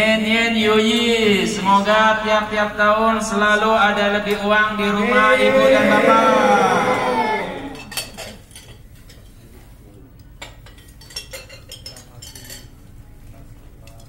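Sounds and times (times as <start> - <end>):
chopsticks clinking on porcelain plates: 7.8 - 9.3, 10.3 - 12.8.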